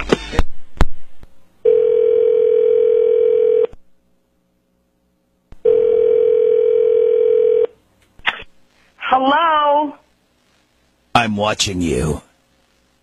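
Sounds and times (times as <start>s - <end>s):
telephone ringback tone: 1.6s - 3.7s, 5.6s - 7.7s.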